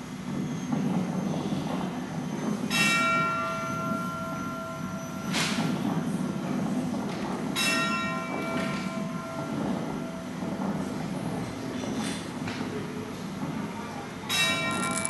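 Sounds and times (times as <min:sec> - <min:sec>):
bell ringing: 0:14.4 - 0:15.0.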